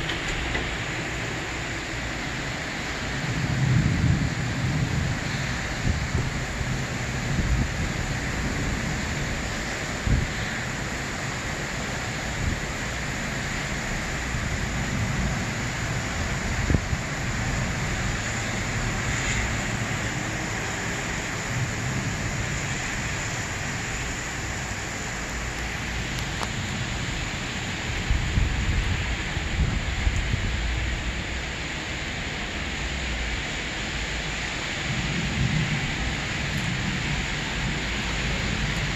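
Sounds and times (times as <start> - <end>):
heavy rain pouring: 0.0 - 38.9.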